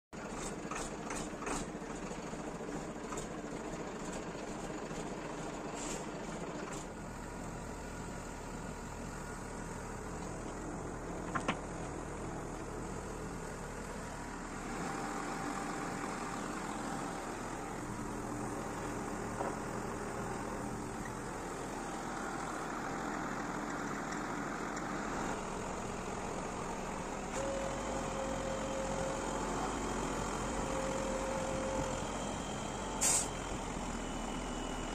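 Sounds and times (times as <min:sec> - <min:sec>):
diesel truck engine idling: 0:00.2 - 0:34.9
steady mechanical whine: 0:03.0 - 0:34.9.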